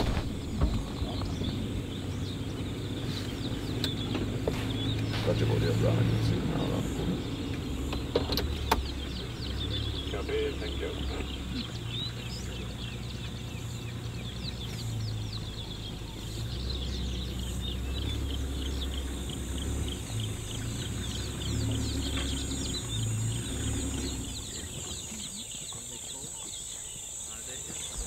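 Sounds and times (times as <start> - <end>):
birds chirping: 0.0 - 28.0
vehicle engine idling: 0.0 - 28.0.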